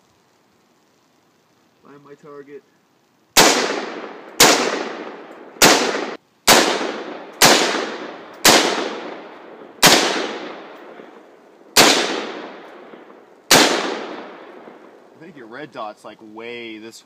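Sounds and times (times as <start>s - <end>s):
rifle shots with long echo: 3.3s - 15.2s.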